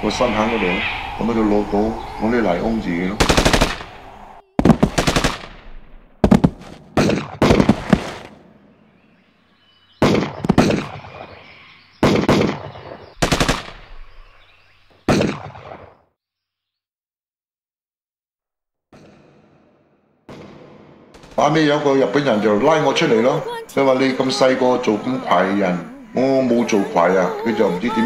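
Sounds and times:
machine-gun bursts: 4.6s - 5.6s, 13.2s - 13.7s.

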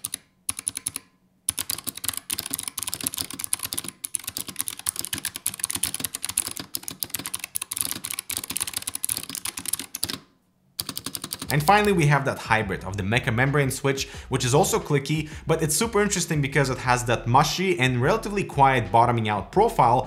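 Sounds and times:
clicky keyboard typing: 0.0s - 12.0s.

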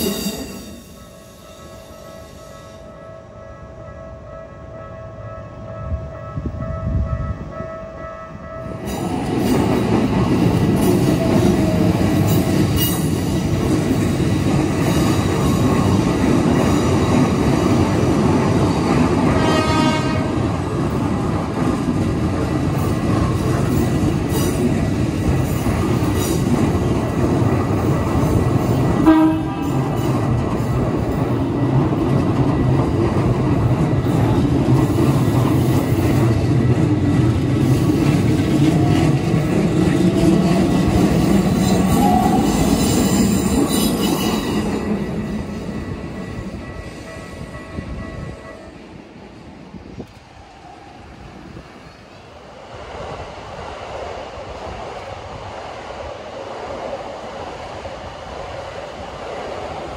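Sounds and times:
train wheels rumbling on rail: 0.0s - 59.9s
train horn blast: 19.3s - 20.5s, 29.0s - 30.0s.

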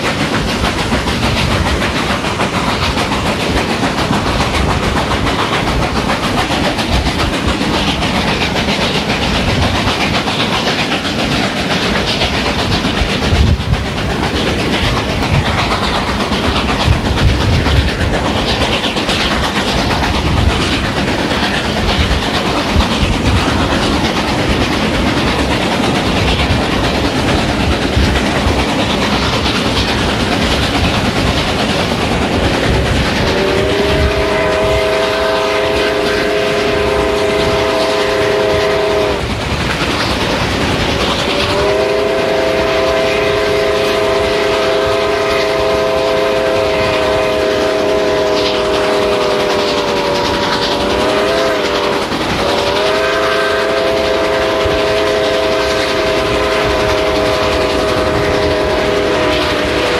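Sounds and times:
train rumble: 0.0s - 59.9s
wheels clacking over rail joints: 0.0s - 59.9s.

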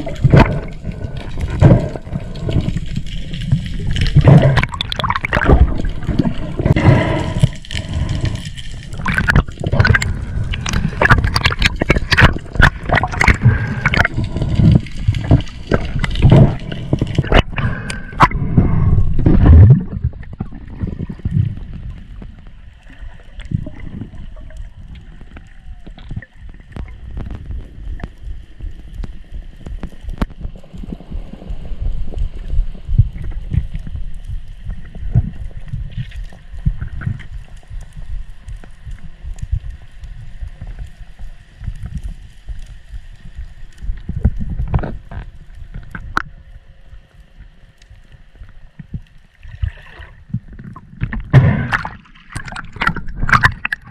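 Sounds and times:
sharp underwater clicks: 0.0s - 22.5s, 47.8s - 53.9s
underwater rumbling wash: 0.0s - 47.1s, 48.9s - 53.9s.

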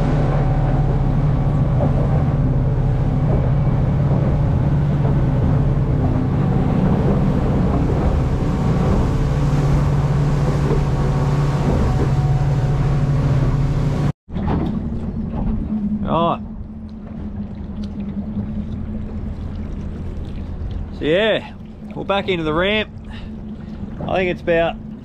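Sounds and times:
boat engine droning: 0.0s - 25.0s
wind and water noise: 0.0s - 25.0s.

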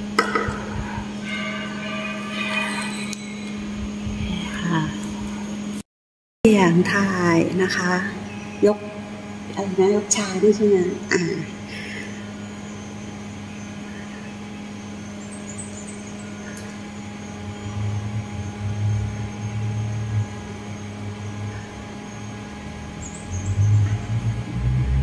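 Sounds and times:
low rumble: 0.0s - 5.7s, 16.1s - 25.0s
steady electrical hum: 0.0s - 5.8s, 6.5s - 25.0s.

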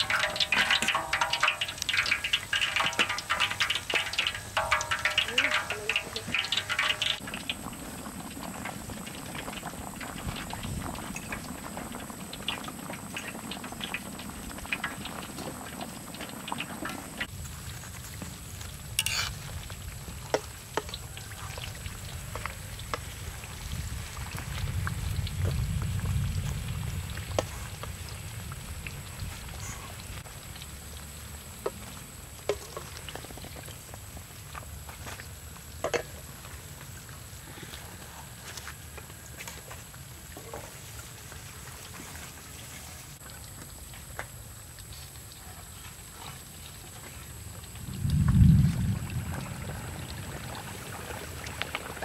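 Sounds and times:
tongs clicking on wok: 0.0s - 7.2s, 19.0s - 19.3s
oil sizzling and bubbling: 0.0s - 52.0s
low rumble: 47.8s - 50.3s.

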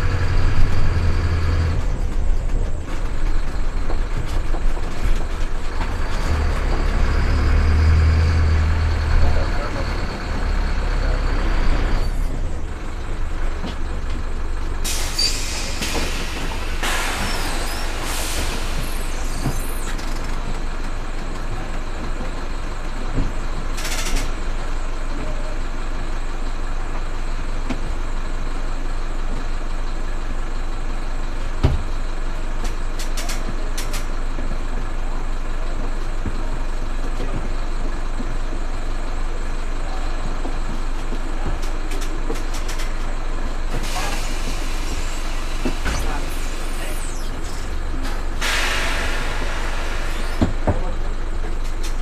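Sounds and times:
bus diesel engine idling: 0.0s - 52.0s
air hissing: 14.8s - 20.4s, 43.7s - 50.6s.

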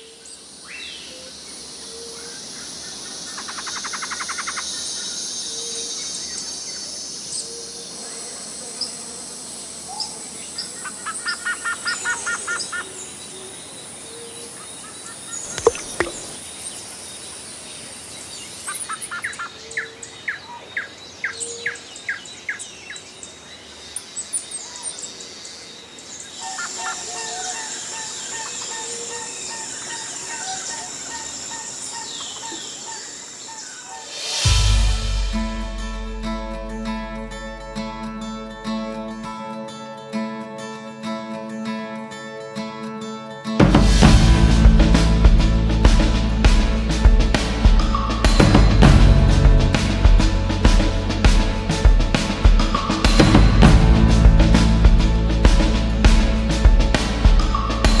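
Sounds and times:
insect drone: 0.0s - 20.2s
birds chirping and trilling: 0.0s - 35.4s
water drop plinking: 15.4s - 16.4s
low repeating note: 34.4s - 39.3s, 43.6s - 58.0s.

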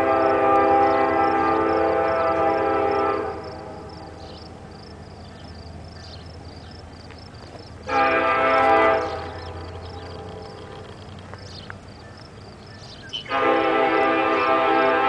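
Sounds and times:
locomotive air horn blasts: 0.0s - 4.2s, 7.9s - 10.4s, 13.2s - 15.0s
low steady rumble: 0.7s - 12.8s.

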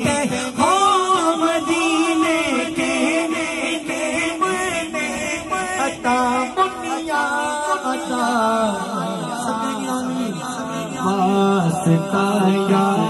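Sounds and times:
lead voice singing: 0.0s - 13.0s
men chanting through microphone: 0.0s - 13.0s.

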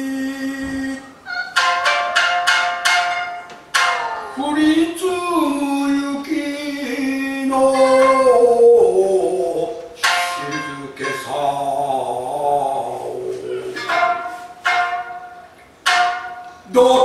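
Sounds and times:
man singing wavering line: 0.0s - 1.8s, 3.8s - 17.0s
shamisen plucked: 0.7s - 5.6s, 7.5s - 17.0s.

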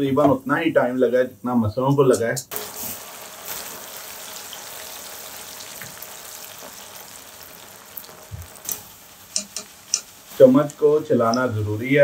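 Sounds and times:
lentils sizzling in hot oil: 2.5s - 12.0s
oil bubbling: 2.5s - 12.0s.

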